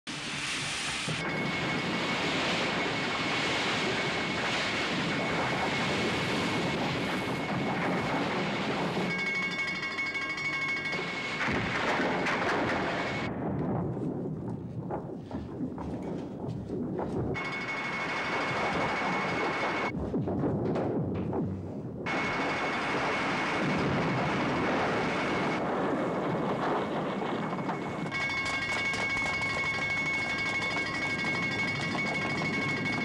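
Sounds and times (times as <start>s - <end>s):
water rushing and spraying: 0.1s - 9.3s
low rumble: 1.0s - 33.0s.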